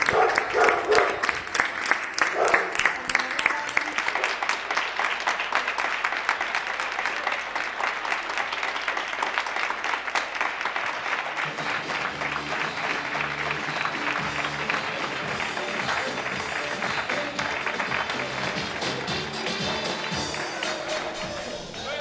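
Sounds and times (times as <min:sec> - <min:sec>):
crowd applauding: 0:00.0 - 0:22.0
music: 0:11.4 - 0:22.0.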